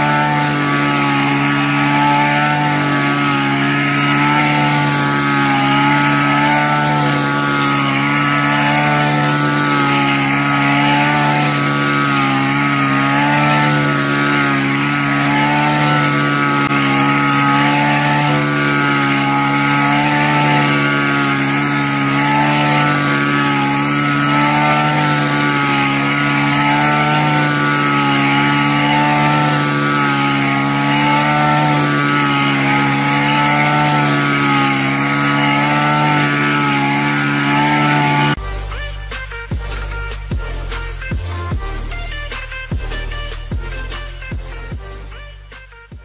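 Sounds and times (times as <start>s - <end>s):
small petrol engine running: 0.0s - 46.0s
music: 38.4s - 46.0s.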